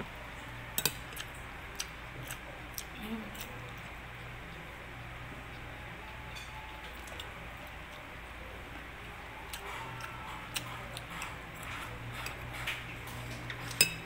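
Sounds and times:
steady low hum: 0:00.0 - 0:14.0
chewing: 0:06.8 - 0:08.1, 0:09.0 - 0:13.8.

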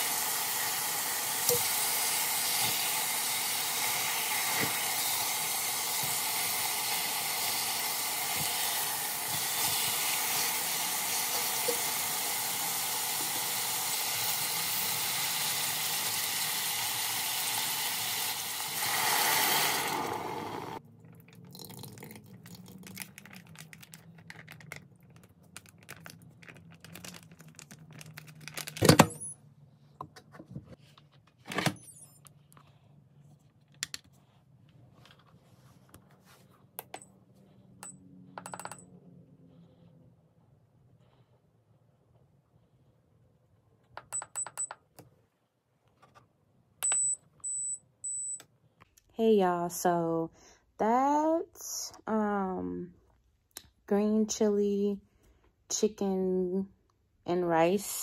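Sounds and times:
chicken sizzling in a pot: 0:00.0 - 0:20.8
water pouring into pot: 0:00.0 - 0:23.4.

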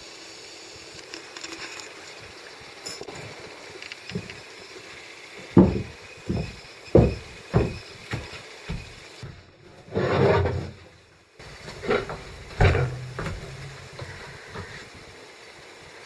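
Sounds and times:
boxes thumping on wooden floor: 0:05.5 - 0:08.8, 0:12.0 - 0:14.7
cardboard scraping rustle: 0:09.7 - 0:10.9.

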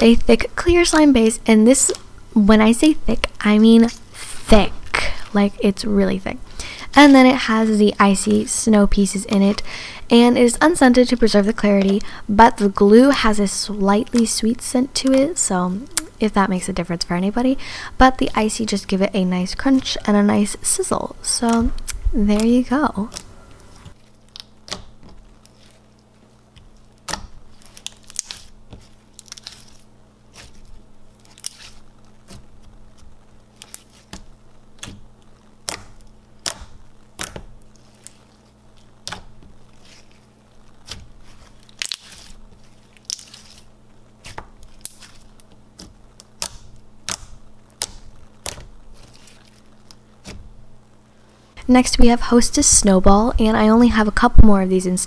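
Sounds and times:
slime crunching and popping: 0:23.9 - 0:50.4.

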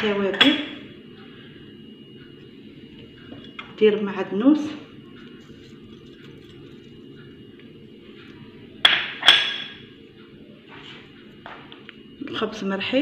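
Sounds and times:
steady low hum: 0:00.0 - 0:13.0
kitchenware clinking: 0:08.8 - 0:09.8.

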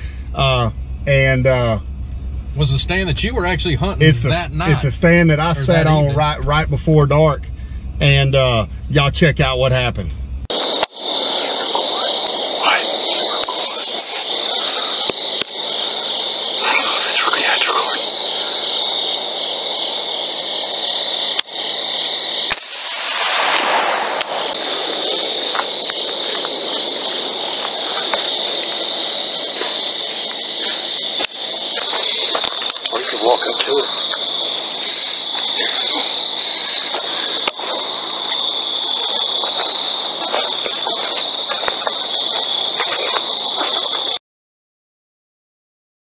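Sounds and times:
night insects chirping: 0:00.0 - 0:44.2
static hiss: 0:10.5 - 0:44.2.

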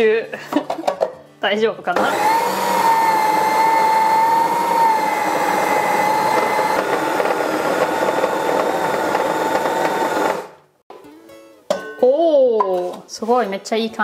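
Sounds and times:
food processor motor whining: 0:02.0 - 0:10.6.

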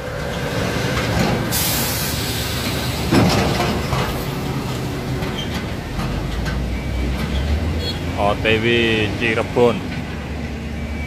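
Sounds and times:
diesel truck engine driving off: 0:00.0 - 0:11.0
wide hiss: 0:01.4 - 0:03.3.

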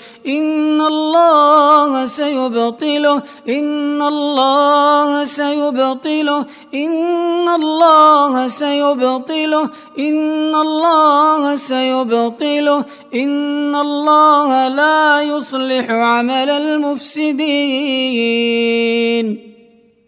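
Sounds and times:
man chanting melodically: 0:15.5 - 0:16.7.

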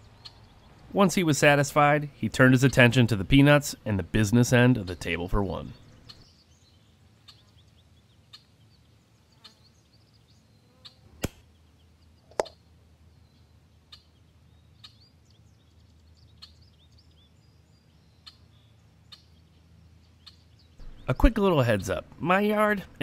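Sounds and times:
faint bird chirps: 0:00.0 - 0:00.9, 0:05.6 - 0:21.4.

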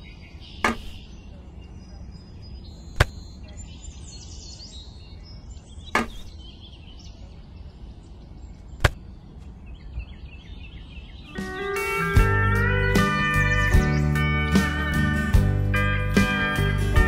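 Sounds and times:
faint bird chirps: 0:00.0 - 0:12.1
sharp knocks: 0:00.6 - 0:01.0, 0:03.0 - 0:03.2, 0:05.9 - 0:06.3
guitar music: 0:11.4 - 0:17.0.

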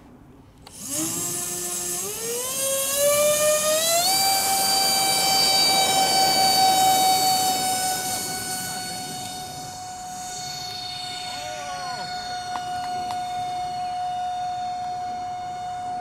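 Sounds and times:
electric ducted fans whining: 0:00.0 - 0:16.0.

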